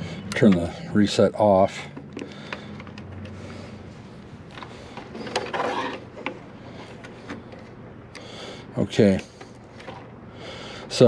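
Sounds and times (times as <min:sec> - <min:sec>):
metal scraping rattle: 0:05.0 - 0:06.3.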